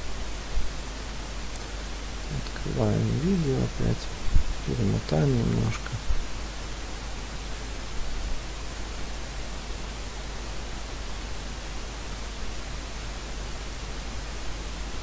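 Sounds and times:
steady hiss: 0.0s - 15.0s
low hum: 2.3s - 6.1s.

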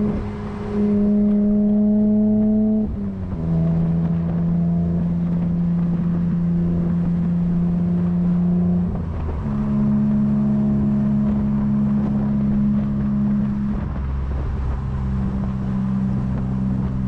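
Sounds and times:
car engine cruising: 0.0s - 17.0s.

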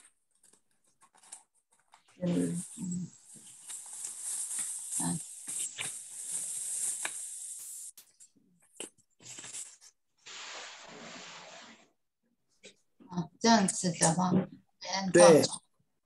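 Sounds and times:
microphone hiss: 2.2s - 8.0s.

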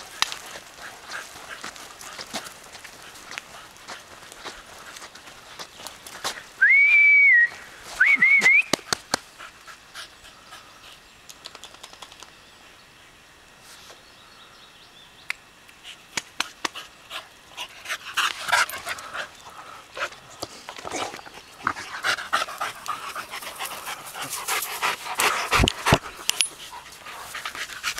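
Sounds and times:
dogs panting: 0.0s - 6.6s, 8.9s - 11.1s, 15.8s - 27.9s
loud whistles: 6.6s - 8.8s.

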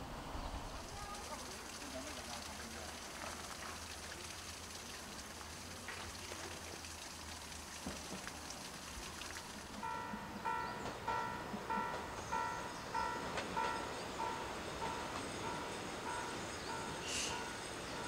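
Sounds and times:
faint outdoor background: 0.0s - 18.0s
level crossing warning bell: 9.8s - 18.0s.

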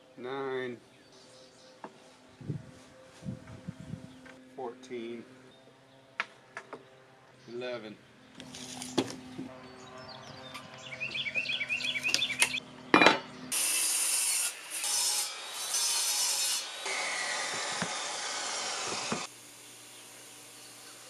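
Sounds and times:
power saw cutting plywood: 13.5s - 19.3s.

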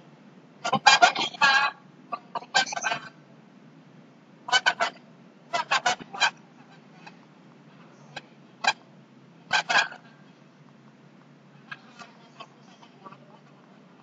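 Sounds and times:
chickens clucking: 0.6s - 3.2s, 4.5s - 7.2s, 7.8s - 8.9s, 9.5s - 10.2s, 11.6s - 13.8s.

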